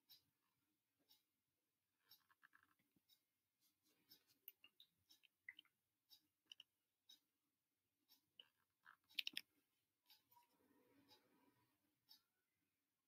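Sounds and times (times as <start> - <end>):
faint small clicks: 8.1 - 9.5.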